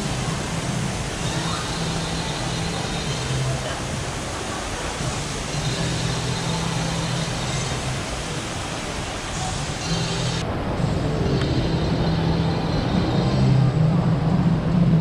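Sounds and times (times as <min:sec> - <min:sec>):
rushing shopping mall noise: 0:00.0 - 0:15.0
low droning hum: 0:09.8 - 0:15.0.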